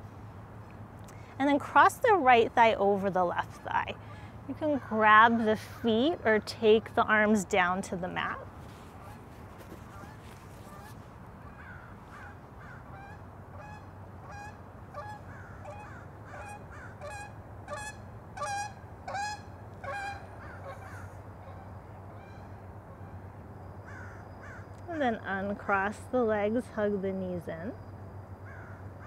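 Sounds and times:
waterfowl honking: 9.9 - 22.5.

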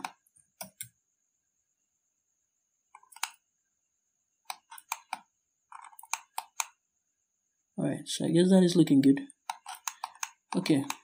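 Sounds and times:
mouse and keyboard clicks: 0.0 - 0.9, 3.0 - 3.4, 4.5 - 6.8, 9.4 - 11.0.

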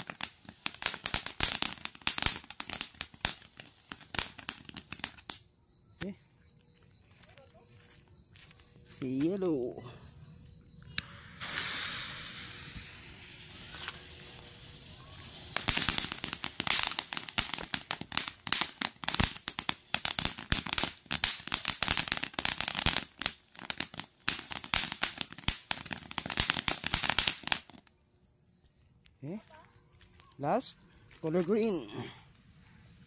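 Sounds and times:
firework fountain hissing: 0.0 - 5.4, 10.9 - 27.8
firework crackling pops: 0.0 - 5.5, 10.9 - 28.0.

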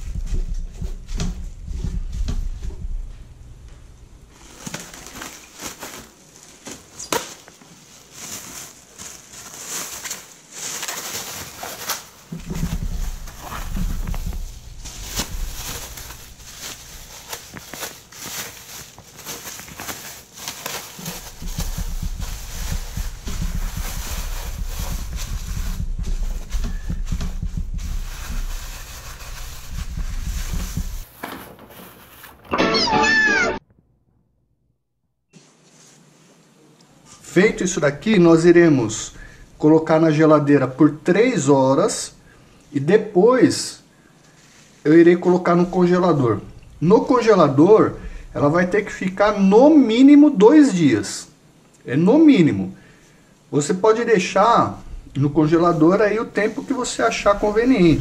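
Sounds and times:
low handling rumble: 0.0 - 4.3, 12.4 - 17.2, 21.2 - 31.1
plastic bag crinkling: 4.3 - 32.5, 54.3 - 58.0.

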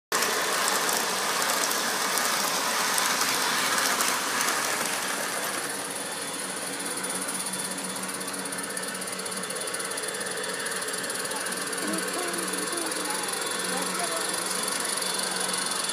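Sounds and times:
model train wheels clattering: 0.2 - 5.7.

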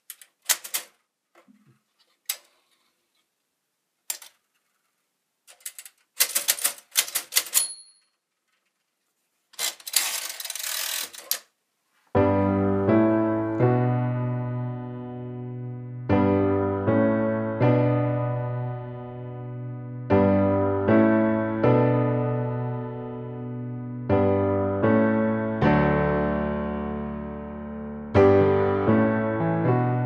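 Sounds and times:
toy typewriter typing: 0.0 - 1.0, 4.1 - 4.4, 5.5 - 7.9, 9.5 - 11.5
typewriter bell ding: 7.5 - 8.2
typewriter carriage rattling slide: 9.6 - 11.4
piano music: 12.1 - 30.0.

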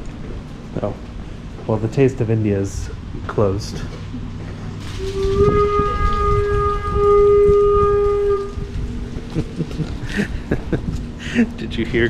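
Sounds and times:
horn blast: 4.9 - 9.1.

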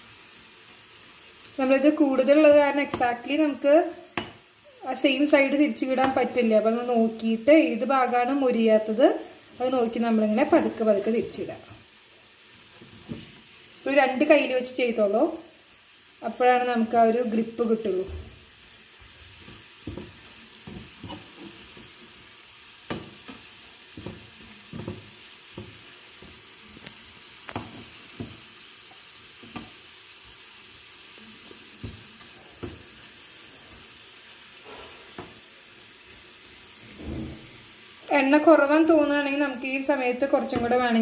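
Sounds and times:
potatoes sizzling in hot oil: 0.0 - 41.0
utensils scraping a pan: 19.4 - 22.1, 34.6 - 35.4.

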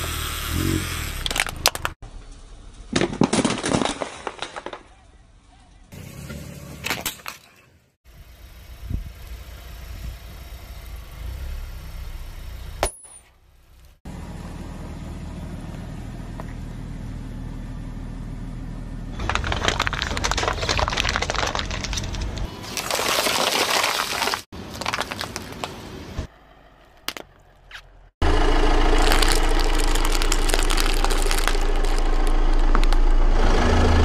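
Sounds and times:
car engine idling: 8.1 - 12.8, 26.2 - 34.0
plastic cracking: 19.2 - 25.7, 29.0 - 33.0
foil trays crunching under tyre: 19.2 - 25.8, 28.8 - 33.1.

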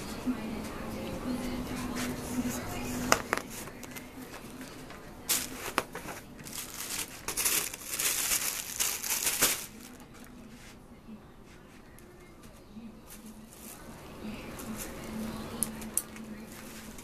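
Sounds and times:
close rustling and crinkling: 3.4 - 10.6.

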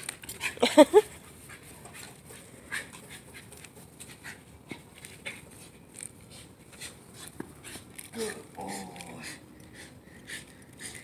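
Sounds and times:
dog panting: 0.2 - 11.0.

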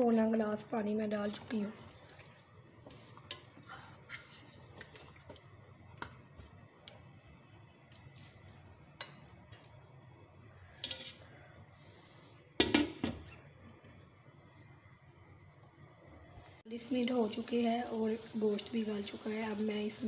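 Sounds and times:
spatula stirring curry in pan: 1.0 - 6.6.

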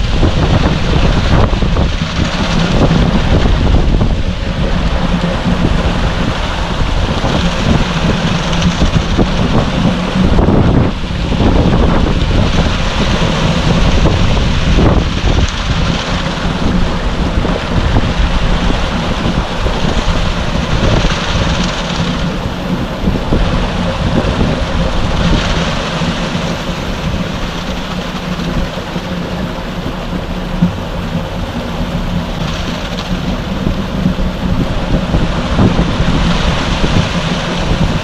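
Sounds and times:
wet concrete sliding and pouring: 0.0 - 29.6
truck engine hum: 0.0 - 38.0.

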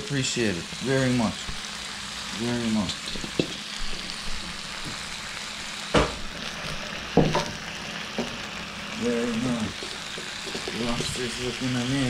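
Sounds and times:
lobsters sizzling on grill: 0.0 - 12.0.

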